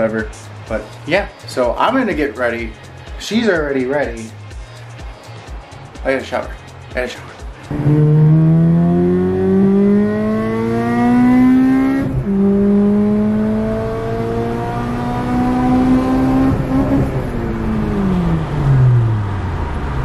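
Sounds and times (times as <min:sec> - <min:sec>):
car engine accelerating: 0:07.7 - 0:20.0.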